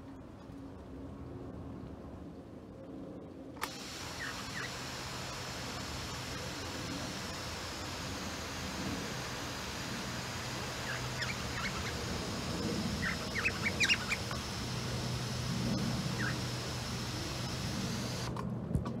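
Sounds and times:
water shower hissing: 0:03.6 - 0:18.3
cockatiels chirping: 0:10.8 - 0:14.4, 0:15.7 - 0:16.6.

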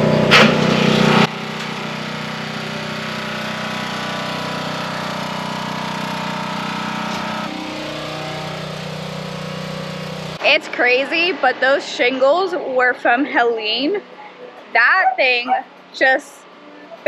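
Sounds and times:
portable generator engine running: 0:00.0 - 0:11.6.

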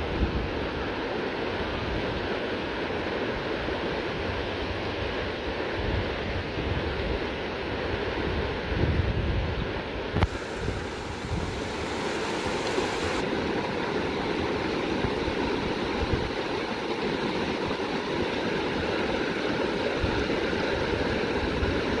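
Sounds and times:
river water rushing over rocks: 0:09.9 - 0:22.0.

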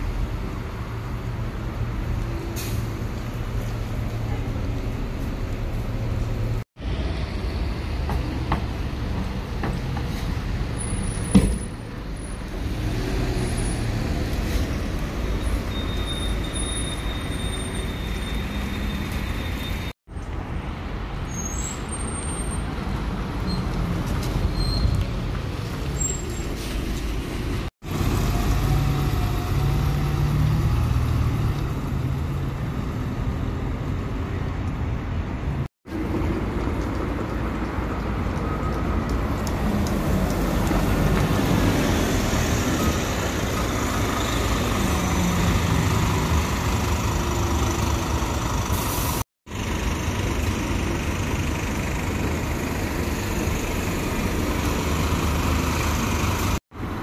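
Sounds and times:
bus diesel engine rumble: 0:00.0 - 0:12.7, 0:39.4 - 0:57.0.

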